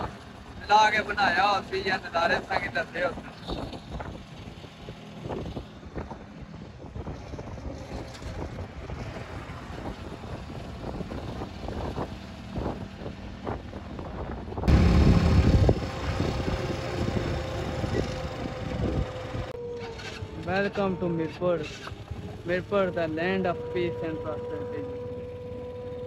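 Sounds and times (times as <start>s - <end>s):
vehicle tyre and engine rumble: 0.0s - 26.0s
wind noise: 2.0s - 20.3s.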